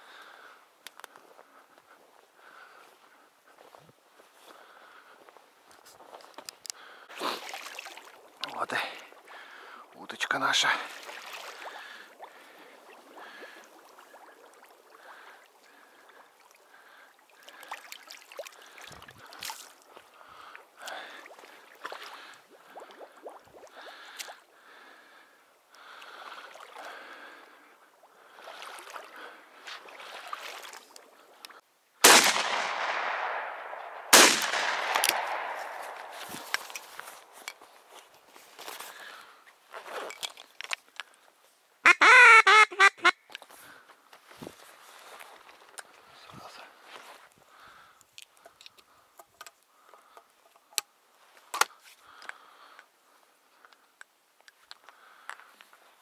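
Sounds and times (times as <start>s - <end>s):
shotgun shots with echo: 32.0s - 36.8s.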